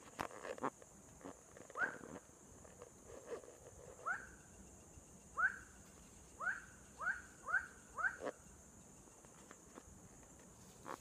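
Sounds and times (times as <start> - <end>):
night animal calling: 0.6 - 2.2, 4.0 - 4.4, 5.4 - 5.8, 6.4 - 8.5.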